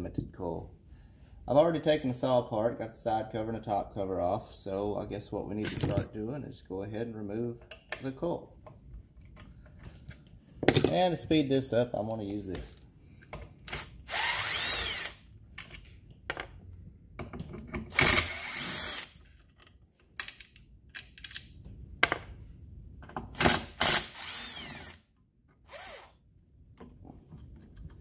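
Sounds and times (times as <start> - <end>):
impact driver spinning screws: 23.4 - 25.0, 25.6 - 26.2.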